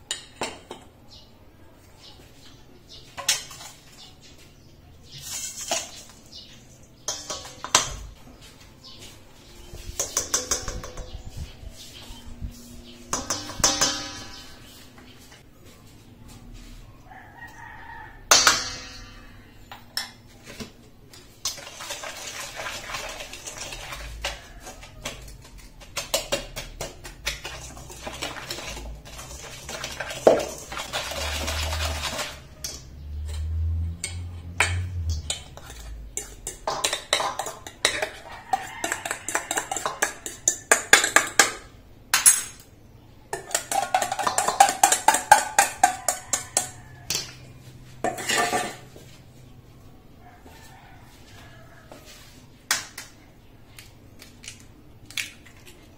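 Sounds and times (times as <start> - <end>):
whisk scraping metal bowl: 21.5 - 32.8, 35.3 - 40.7.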